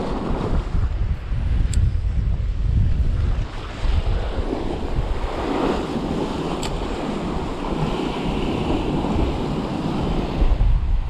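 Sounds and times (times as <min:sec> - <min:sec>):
wind buffeting microphone: 0:00.0 - 0:11.0
sea waves breaking on rocks: 0:03.1 - 0:10.9.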